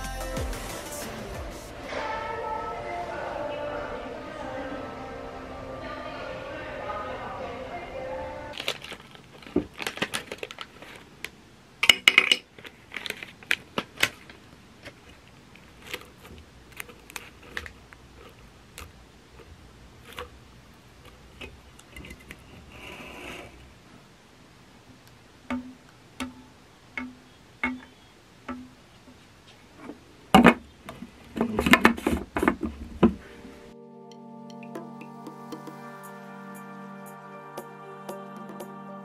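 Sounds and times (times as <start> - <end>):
wrapper crinkling and tearing: 8.5 - 11.1, 12.5 - 18.4
plucked music notes: 33.4 - 39.0.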